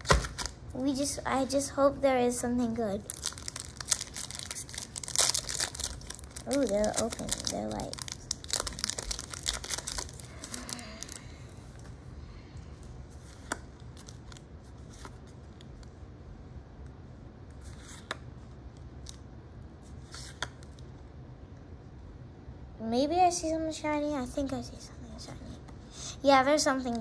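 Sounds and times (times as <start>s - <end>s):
foil wrapper crinkling and tearing: 0.0s - 0.6s, 3.0s - 11.3s.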